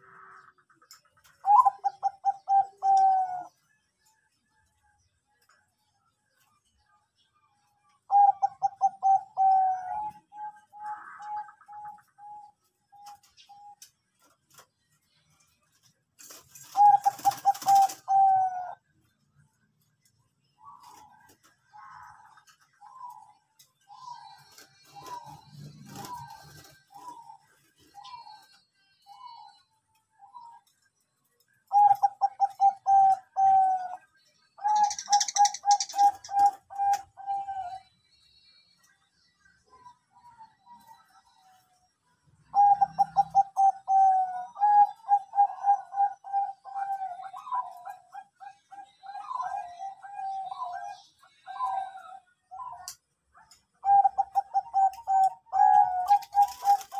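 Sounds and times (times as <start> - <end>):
dove cooing: 1.2 - 3.6, 8.0 - 13.8, 16.4 - 18.8, 20.6 - 29.6, 31.7 - 37.9, 42.5 - 56.9.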